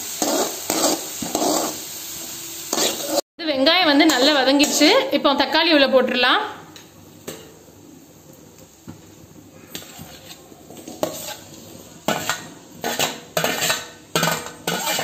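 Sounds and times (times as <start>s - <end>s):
onions sizzling in a pan: 0.0s - 15.0s
steel spoon scraping a plate: 0.2s - 1.8s, 2.7s - 3.2s, 9.7s - 15.0s.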